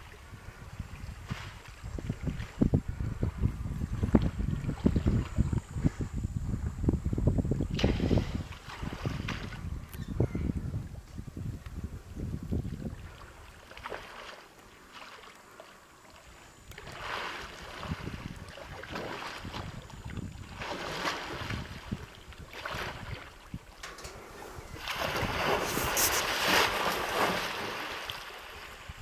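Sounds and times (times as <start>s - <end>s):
wind rumbling on microphone: 0.0s - 14.2s, 16.4s - 29.0s
water sloshing and splashing: 7.8s - 9.7s, 12.9s - 29.0s.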